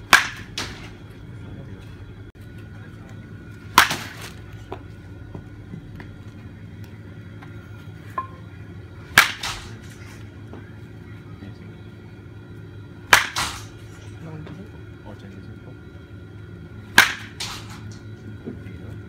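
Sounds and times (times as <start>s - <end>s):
baseball bat cracking ball: 0.1s - 1.0s, 3.7s - 4.9s, 9.1s - 10.0s, 13.0s - 13.8s, 16.9s - 18.0s.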